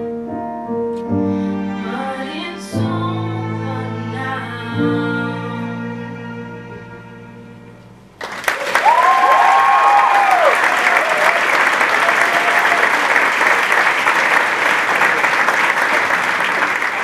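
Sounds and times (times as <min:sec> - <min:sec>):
singing with strings: 0:01.2 - 0:08.0
audience applause: 0:08.2 - 0:17.0
audience cheering: 0:08.2 - 0:17.0.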